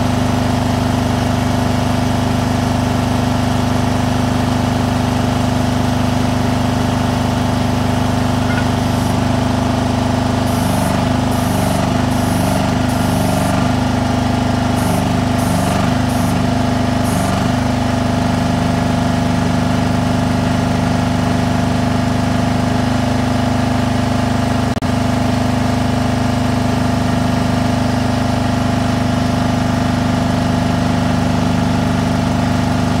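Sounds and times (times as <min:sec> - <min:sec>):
hydraulic power unit running: 0:00.0 - 0:33.0
short high-pitched pulses: 0:08.4 - 0:09.3, 0:10.4 - 0:13.8, 0:14.7 - 0:17.5.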